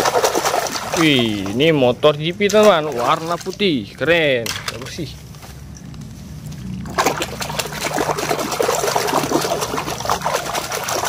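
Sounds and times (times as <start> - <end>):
water splashing and sloshing: 0.0 - 11.0.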